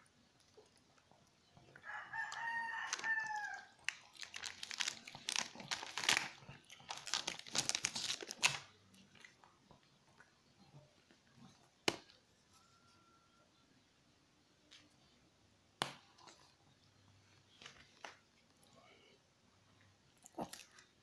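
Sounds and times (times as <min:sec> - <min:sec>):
dog crunching a cracker: 0:01.9 - 0:09.6.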